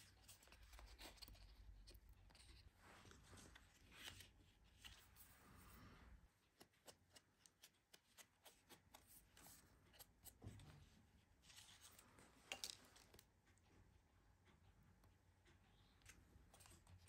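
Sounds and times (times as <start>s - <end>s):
paper rustling: 0.0s - 5.9s.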